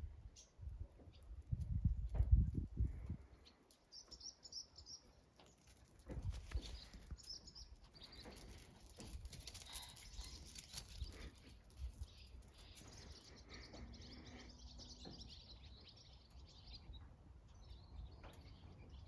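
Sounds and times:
small birds chirping: 0.2s - 19.0s.

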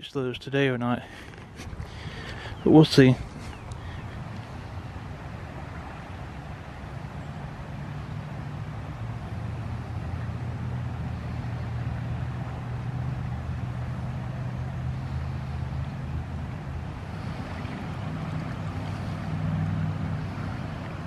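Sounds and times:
distant engine drone: 0.0s - 21.0s.

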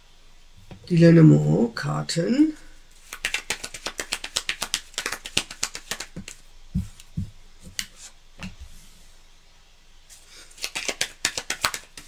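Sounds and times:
cards being shuffled: 3.0s - 8.6s, 10.1s - 12.0s
soft thumps of cards: 6.2s - 8.7s.

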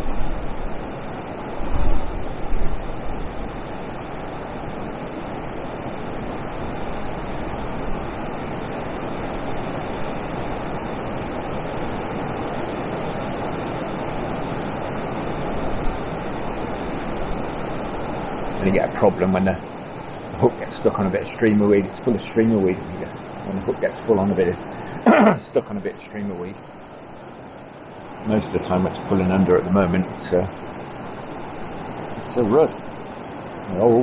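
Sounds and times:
wind buffeting microphone: 0.0s - 25.1s
water rushing over weir: 0.0s - 34.0s.

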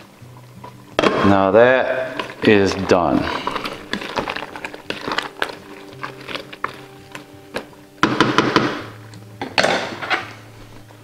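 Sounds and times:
wooden spoon tapping pot: 1.0s - 10.2s
spoon scraping metal pot: 1.7s - 7.7s.

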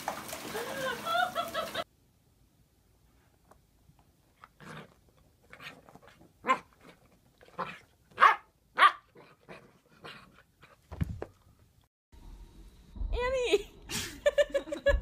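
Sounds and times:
puppy yapping: 8.2s - 9.1s.

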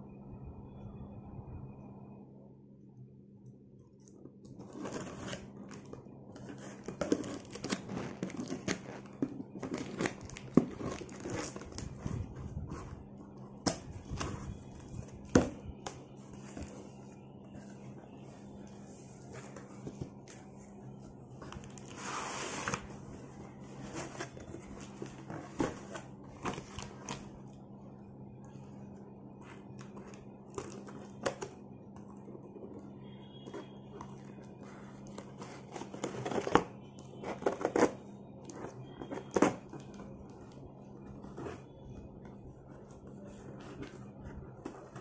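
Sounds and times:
steady low hum: 0.0s - 45.0s
cardboard scraping and rustling: 4.5s - 27.3s, 33.4s - 45.0s.

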